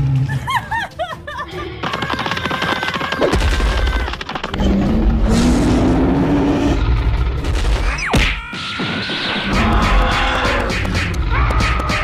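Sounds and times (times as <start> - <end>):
music: 0.0 - 5.3, 5.9 - 12.0
heavy low rumble: 4.8 - 7.8.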